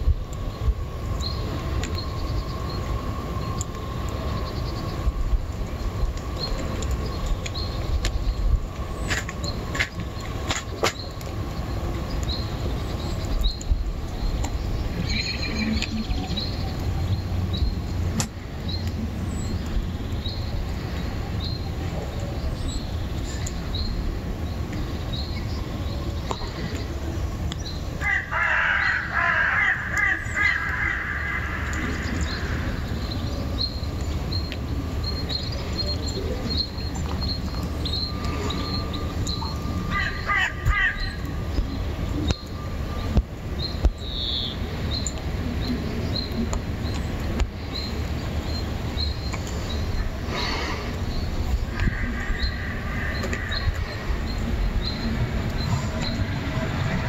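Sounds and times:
crow cawing: 28.0 - 32.0, 39.9 - 41.1, 51.9 - 53.7.

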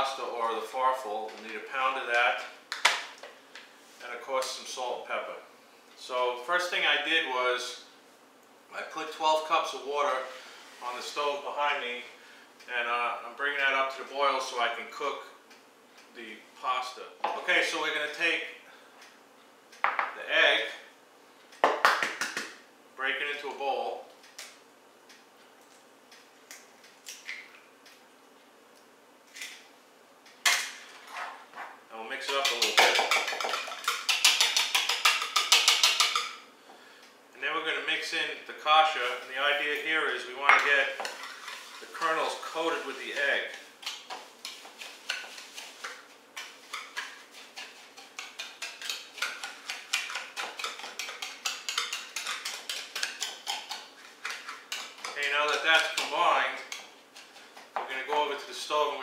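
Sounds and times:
utensil scraping ceramic bowl: 40.5 - 58.5.

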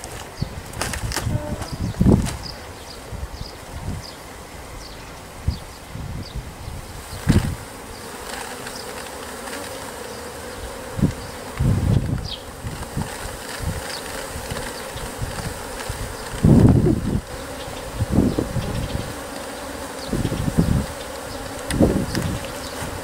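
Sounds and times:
brushing bumps and rustles: 0.0 - 2.6, 6.9 - 10.3, 10.9 - 17.2
bees buzzing: 0.0 - 23.0.

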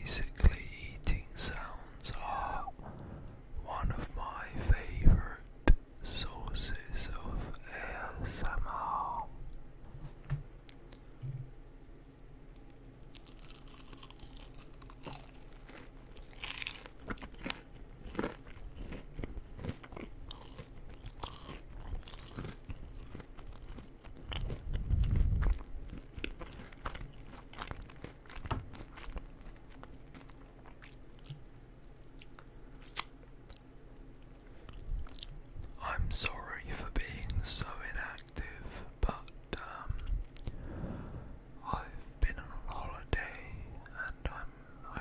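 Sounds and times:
crisp crunching bites: 12.6 - 31.4.

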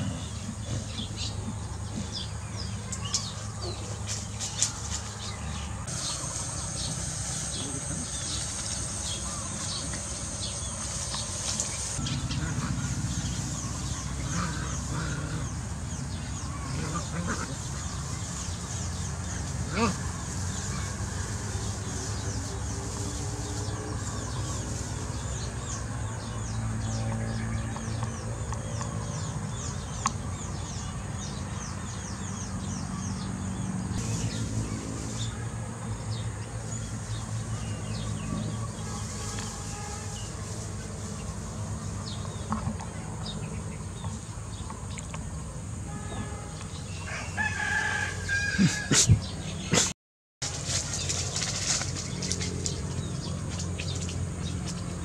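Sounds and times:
drawn-out fowl call: 47.0 - 49.0.

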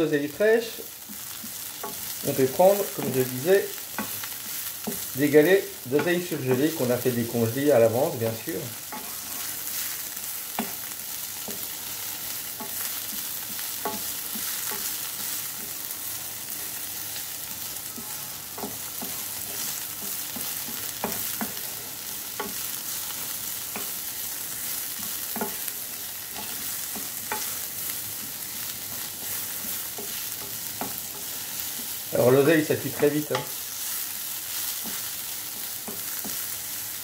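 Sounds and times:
vegetables sizzling in oil: 0.0 - 37.0
wooden spatula scraping pan: 1.1 - 10.8.

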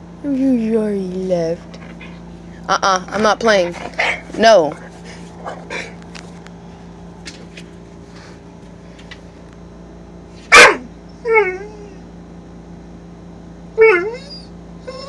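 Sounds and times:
dog barking: 10.5 - 10.9
dog whining yowl: 10.5 - 12.1, 13.8 - 15.0.

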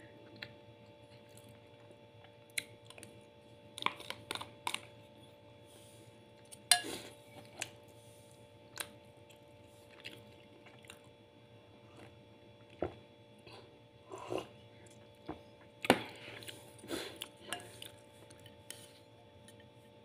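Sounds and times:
faint steady hum: 0.0 - 20.0
chewing: 0.2 - 3.2, 8.7 - 11.2.

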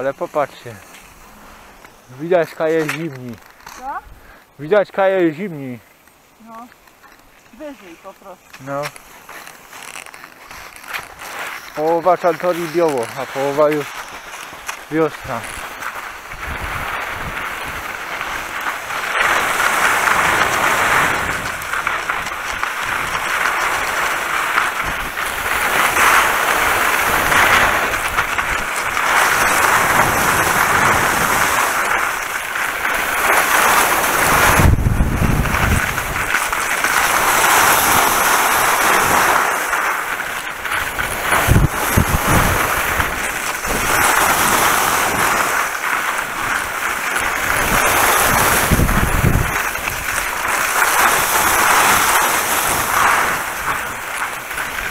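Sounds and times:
skis scraping over snow: 0.0 - 54.9
wind buffeting microphone: 15.2 - 54.9.

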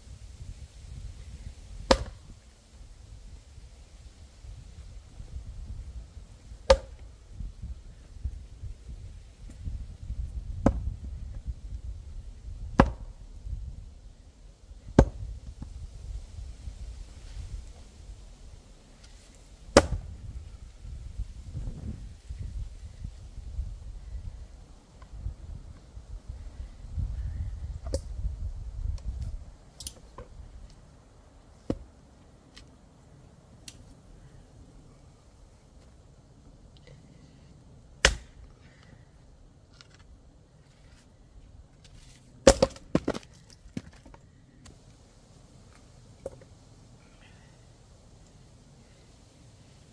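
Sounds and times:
axe chopping firewood: 1.8 - 2.3, 6.6 - 7.0, 10.6 - 11.0, 12.8 - 13.1, 14.9 - 15.3, 19.7 - 20.1, 31.6 - 31.9, 38.0 - 38.4, 42.4 - 44.2.

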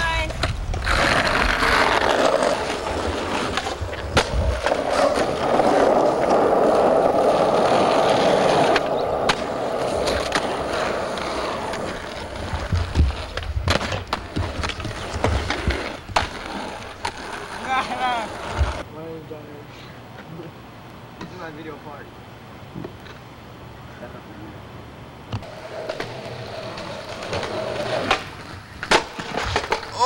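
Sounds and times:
skateboard wheels rolling on asphalt: 0.0 - 18.9, 25.1 - 30.0
skateboard clacks: 0.1 - 18.8, 25.4 - 30.0.

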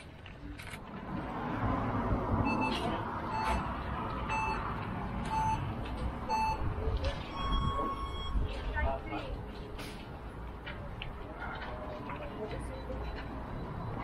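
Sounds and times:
steady background noise: 0.0 - 14.0
short beeps: 2.4 - 3.7, 4.3 - 4.7, 5.3 - 5.7, 6.3 - 8.6.

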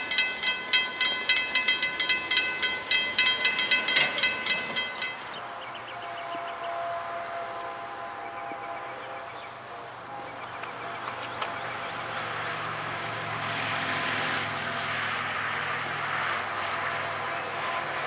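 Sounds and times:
railroad crossing bell ringing: 0.0 - 9.1
truck driving across tracks: 0.0 - 18.0.

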